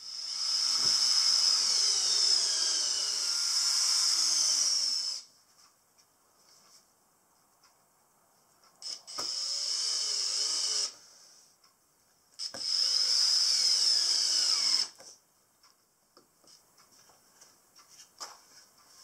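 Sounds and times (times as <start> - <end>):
cordless drill driving screws into wood: 0.1 - 5.3, 8.8 - 11.0, 12.4 - 15.0.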